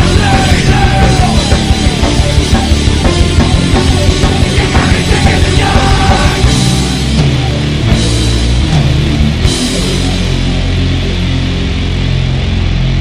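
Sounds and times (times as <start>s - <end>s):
fast drumming: 0.0s - 10.6s
heavy rock music: 0.0s - 13.0s.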